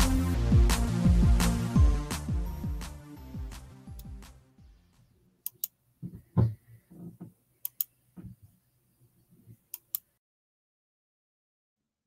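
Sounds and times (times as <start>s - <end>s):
sharp clicks: 5.4s - 5.8s, 7.6s - 7.9s, 9.7s - 10.1s.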